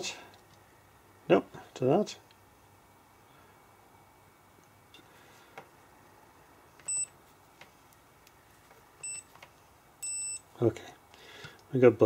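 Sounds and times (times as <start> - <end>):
multimeter high beep: 6.9 - 7.1, 9.0 - 9.3, 10.0 - 10.5.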